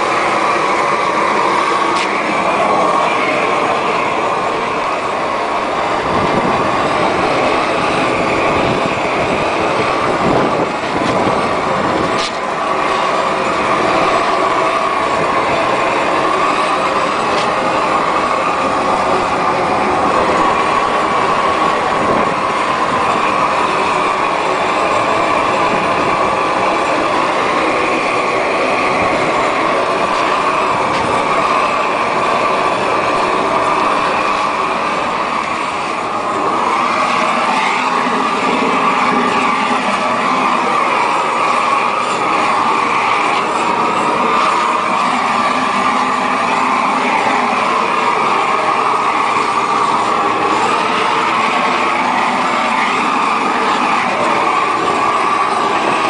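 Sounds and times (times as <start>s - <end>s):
roofing torch rushing: 0.0s - 56.0s.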